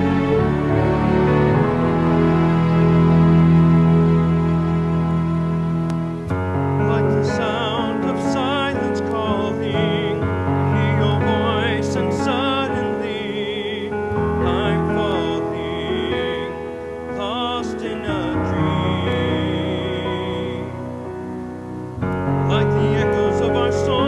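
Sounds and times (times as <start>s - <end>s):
keyboard and bass accompaniment: 0.0s - 24.0s
solo voice singing with vibrato: 6.9s - 21.0s.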